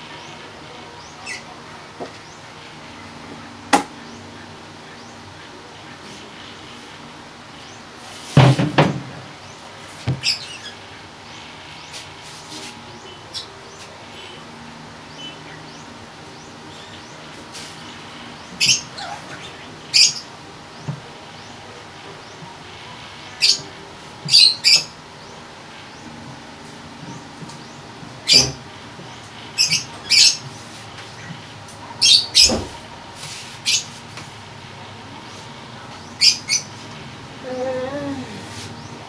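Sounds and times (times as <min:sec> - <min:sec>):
plastic chair clunking on wooden table: 0:08.4 - 0:09.1.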